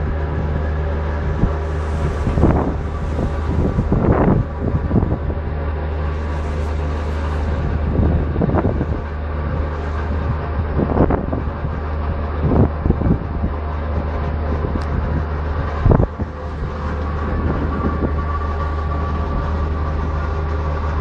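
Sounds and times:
ferry engines humming: 0.0s - 21.0s
wind buffeting microphone: 0.0s - 21.0s.

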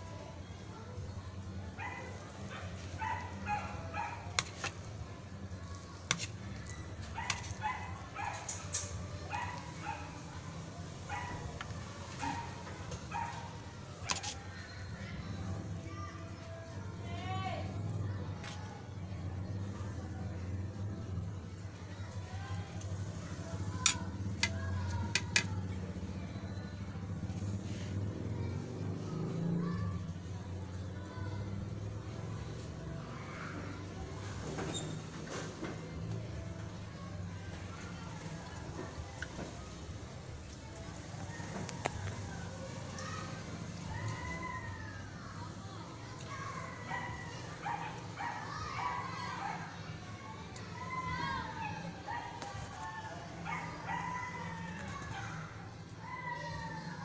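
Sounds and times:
dog yipping: 1.8s - 4.3s, 6.7s - 8.6s, 9.3s - 10.2s, 11.0s - 11.5s, 12.2s - 14.4s.

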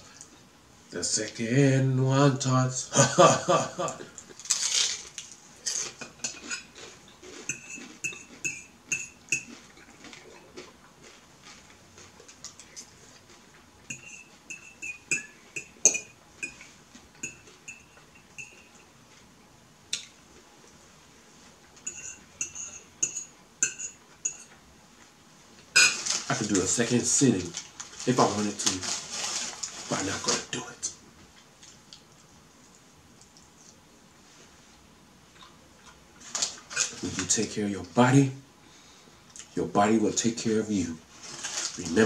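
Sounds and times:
fork clinking on ceramic plate: 7.5s - 9.6s, 13.9s - 18.9s, 21.8s - 24.5s.

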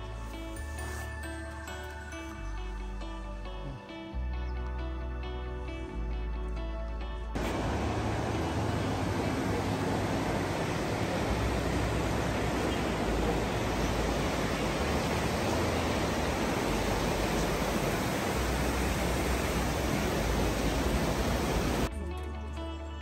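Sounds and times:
river rushing over rapids: 7.4s - 21.9s.

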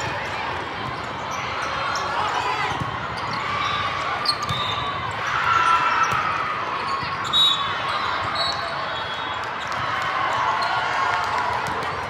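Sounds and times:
murmur of crowd voices: 0.0s - 12.0s
shoe squeaks on court floor: 4.2s - 4.8s
volleyballs hit and bouncing: 11.2s - 12.0s.

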